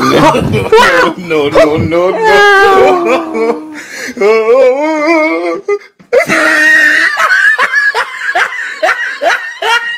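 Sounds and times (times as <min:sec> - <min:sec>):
wavering wailing voice: 0:02.2 - 0:05.6.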